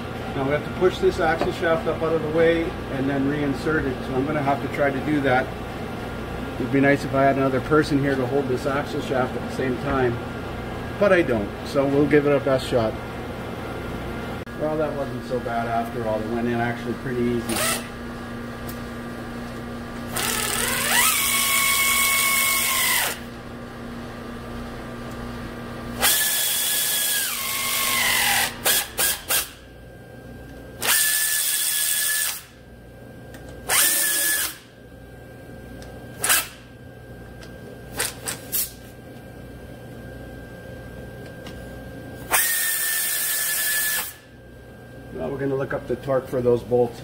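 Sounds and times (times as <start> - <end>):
pneumatic air ratchet bursts: 20.1 - 23.2, 26.0 - 29.6, 30.8 - 32.6, 33.7 - 34.7, 36.2 - 36.6, 42.3 - 44.2.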